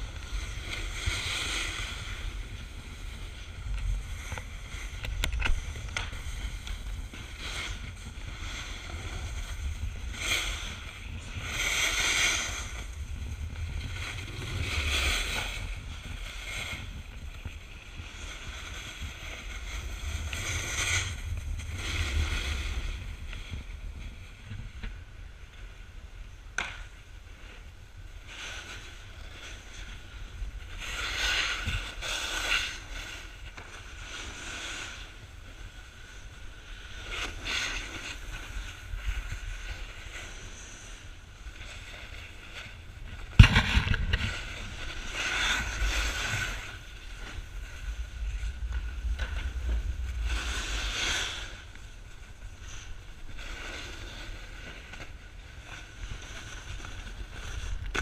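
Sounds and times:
board edges scraping on snow: 0:00.0 - 0:24.8, 0:28.2 - 0:58.0
wind rumble on microphone: 0:00.0 - 0:58.0
sharp knock: 0:43.4 - 0:44.4.

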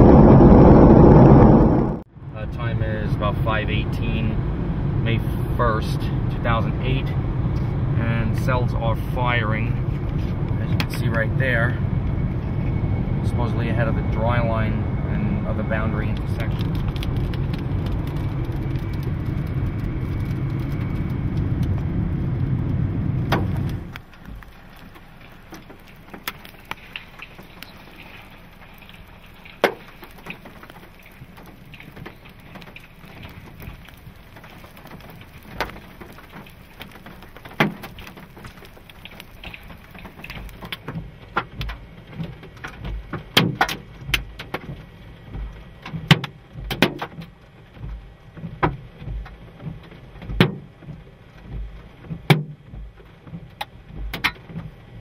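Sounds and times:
rain hissing: 0:00.0 - 0:02.1, 0:03.2 - 0:46.1
hailstones knocking on hard surfaces: 0:16.1 - 0:21.8, 0:23.2 - 0:44.8.

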